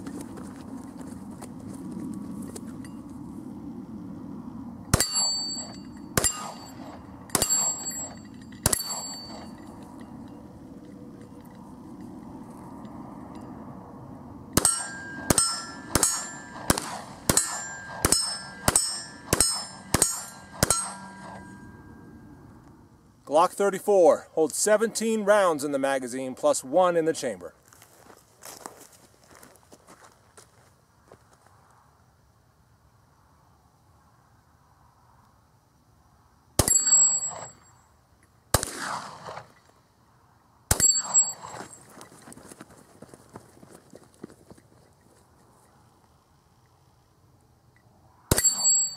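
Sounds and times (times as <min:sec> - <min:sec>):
steel target clanging: 0:05.0 - 0:09.7, 0:14.6 - 0:22.0, 0:36.6 - 0:37.6, 0:48.3 - 0:48.9
pistol shots: 0:06.2 - 0:09.4, 0:14.6 - 0:21.5, 0:38.5 - 0:39.5.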